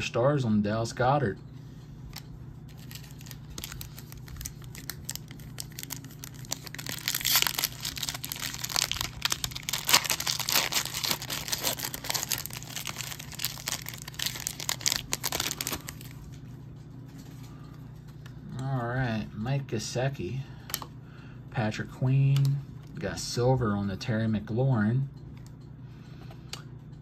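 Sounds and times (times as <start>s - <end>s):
foil wrapper crinkling and tearing: 2.7s - 16.3s.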